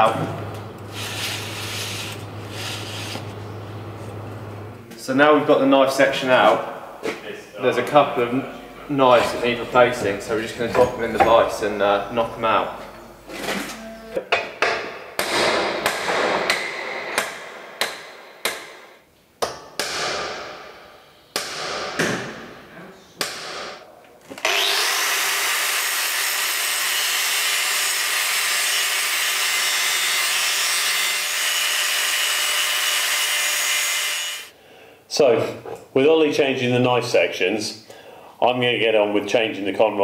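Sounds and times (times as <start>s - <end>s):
angle grinder grinding steel: 0.9s - 3.4s, 24.4s - 34.5s
hammer striking steel bar: 14.6s - 22.3s.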